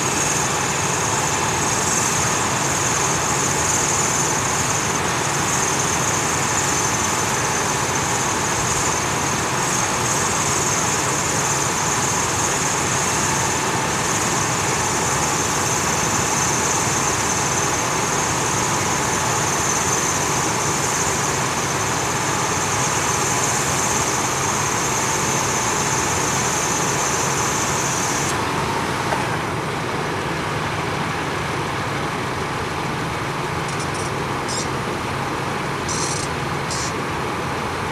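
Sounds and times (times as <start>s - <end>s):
loud high-pitched buzz: 0.0s - 28.9s, 35.8s - 37.0s
hydraulic power unit humming: 0.0s - 37.9s.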